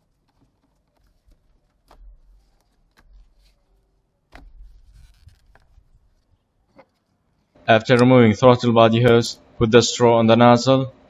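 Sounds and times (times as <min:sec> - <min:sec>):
rubber hose rubbing and bumping: 0:00.0 - 0:07.6.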